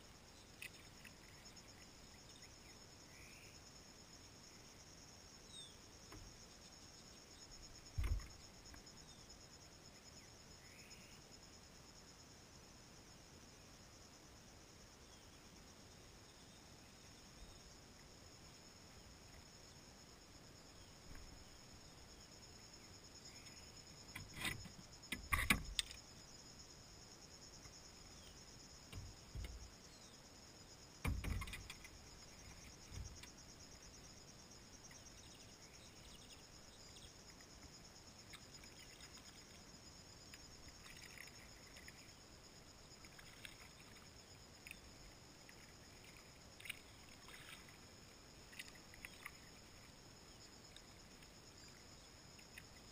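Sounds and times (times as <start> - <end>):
insects buzzing: 0.0 - 52.9
paddle splashing: 45.5 - 50.0.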